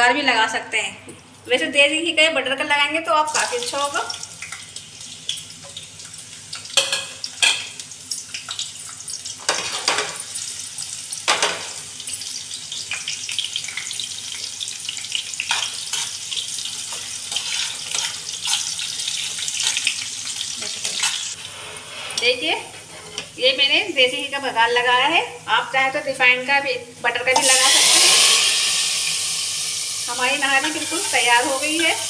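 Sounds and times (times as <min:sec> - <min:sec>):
sharp pops of frying: 0:03.3 - 0:21.4
onions sizzling in ghee: 0:03.3 - 0:32.0.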